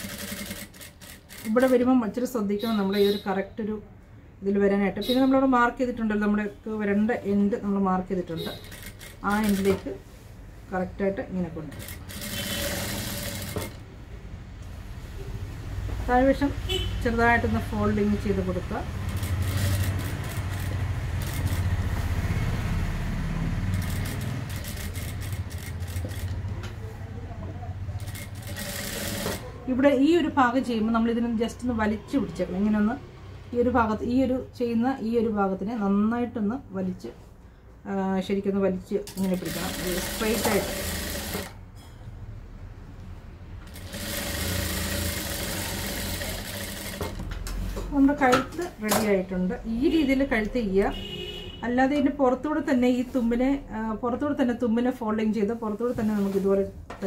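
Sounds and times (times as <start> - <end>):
sewing machine stitching: 0.0 - 1.8, 8.5 - 10.0, 11.7 - 13.8, 19.0 - 21.9, 23.6 - 26.5, 28.0 - 29.5, 39.1 - 41.6, 43.7 - 47.3.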